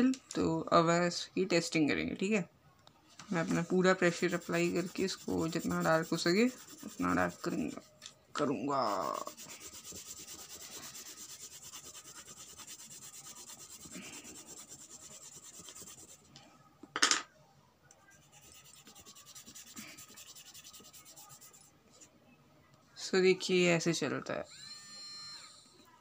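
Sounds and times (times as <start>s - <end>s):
pencil scratching on paper: 3.4s - 7.9s, 8.8s - 16.3s, 18.1s - 21.7s.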